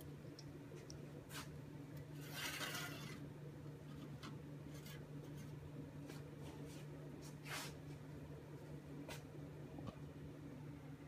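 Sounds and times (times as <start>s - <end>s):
steady low hum: 0.0s - 11.0s
glass scraping across metal grate: 2.2s - 3.2s.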